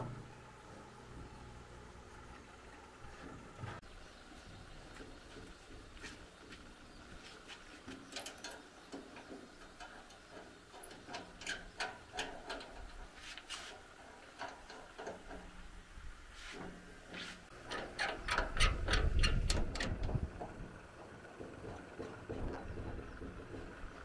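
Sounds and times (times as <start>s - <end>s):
light metal clicks and taps: 7.9s - 13.0s.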